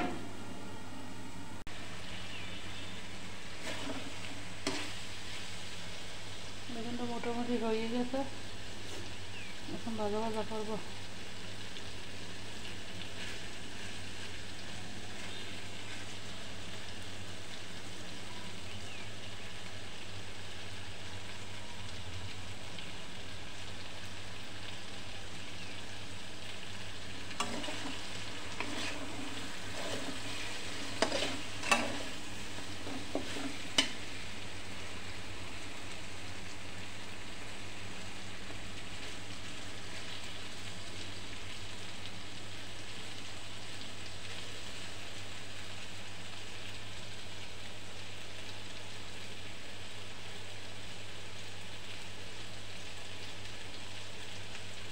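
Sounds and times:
eggplant sizzling in oil: 0:00.0 - 0:54.9
metal spatula scraping pan: 0:03.6 - 0:05.0, 0:27.4 - 0:34.1.

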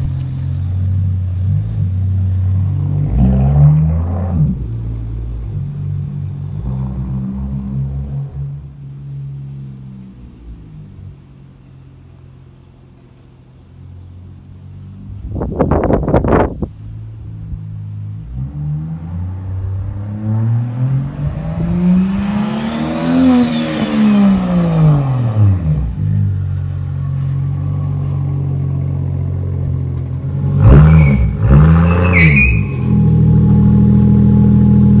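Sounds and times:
car engine revving: 0:00.0 - 0:35.0.

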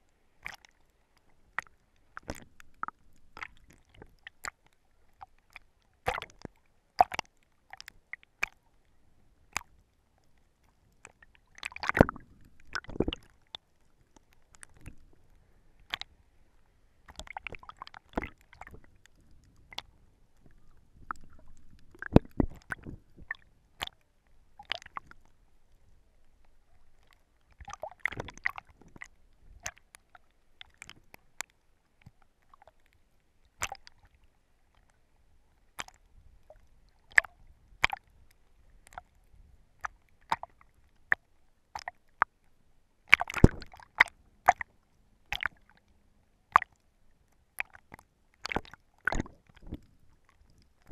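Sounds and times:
water sloshing and splashing: 0:00.4 - 0:08.6, 0:11.0 - 0:16.2, 0:17.0 - 0:25.3, 0:26.4 - 0:31.4, 0:35.7 - 0:38.0, 0:43.1 - 0:44.7, 0:45.3 - 0:45.8, 0:47.6 - 0:50.9
sharp clicks and pops: 0:11.6 - 0:15.0, 0:17.1 - 0:24.0, 0:43.1 - 0:44.7.

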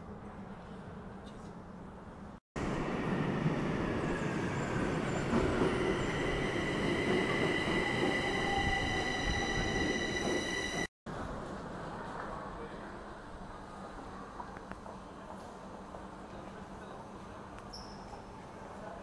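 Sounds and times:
high-pitched train whine: 0:02.6 - 0:10.9
metro train rumbling: 0:02.6 - 0:12.0.

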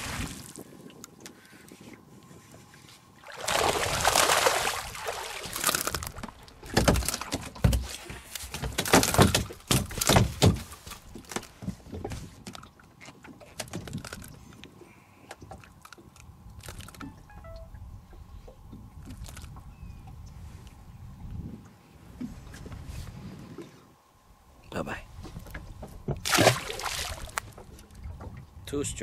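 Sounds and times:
fish splashing at water surface: 0:03.3 - 0:06.2, 0:26.2 - 0:27.6
fish thumping on boat deck: 0:03.5 - 0:12.0.

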